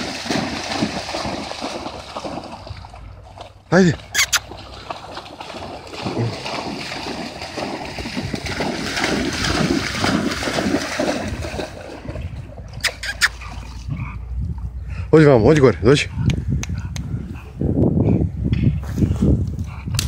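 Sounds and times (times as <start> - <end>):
dog splashing through water: 0.0 - 14.0.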